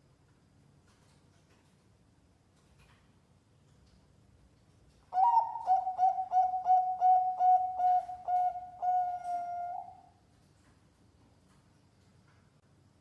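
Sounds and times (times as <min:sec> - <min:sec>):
dove cooing: 0:05.1 - 0:10.1.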